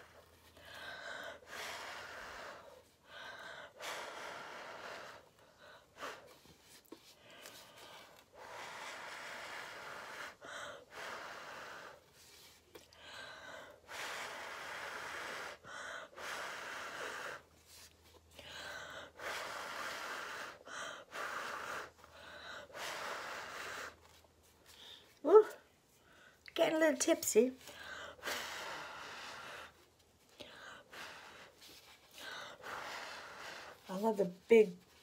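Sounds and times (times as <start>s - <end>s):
quick breaths: 27.6s - 33.9s.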